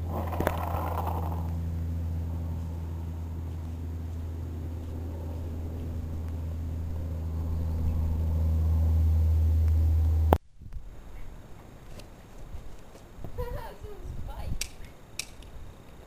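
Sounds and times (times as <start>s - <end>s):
faint outdoor noise: 0.0s - 16.0s
low mechanical hum: 0.0s - 16.0s
sharp click: 14.6s - 15.5s.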